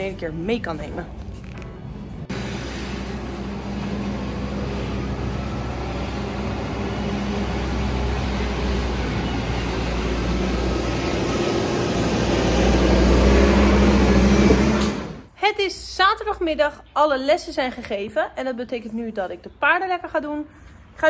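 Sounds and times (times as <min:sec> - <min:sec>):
wheel loader engine running: 0:01.2 - 0:15.3.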